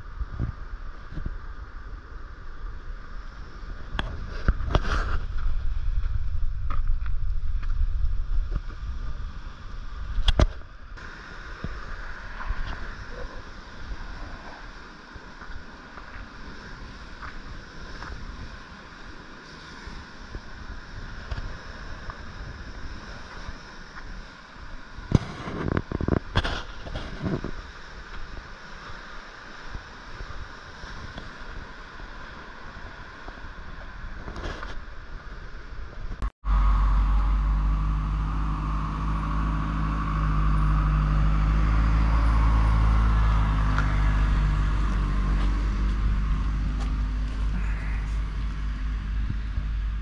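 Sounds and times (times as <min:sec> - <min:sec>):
wind rumbling on microphone: 0:00.0 - 0:50.0
steady hiss: 0:08.3 - 0:36.1.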